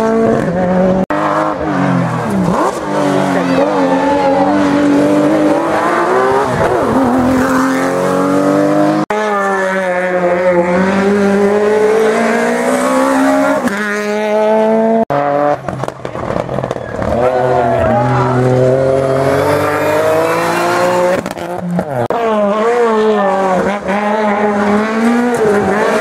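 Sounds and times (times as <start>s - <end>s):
rally car engines revving: 0.0s - 26.0s.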